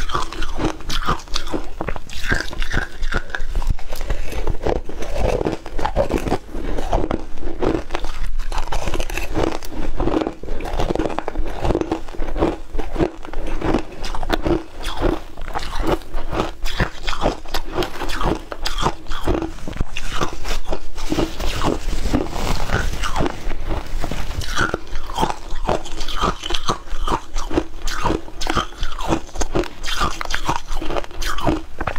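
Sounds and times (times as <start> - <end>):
ice being chewed: 0.0 - 31.9.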